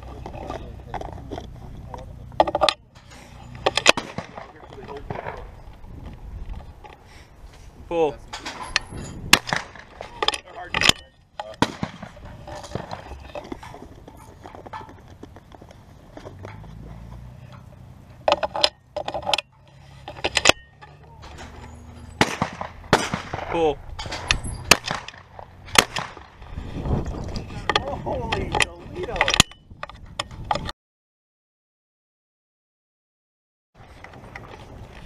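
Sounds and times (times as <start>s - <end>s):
shotgun clicks and knocks: 0.2s - 7.0s, 8.3s - 16.8s, 17.5s - 26.4s, 27.6s - 30.7s.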